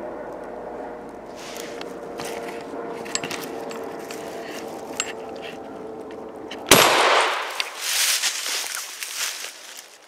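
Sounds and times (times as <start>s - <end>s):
camera handling rustle: 1.4s - 6.2s.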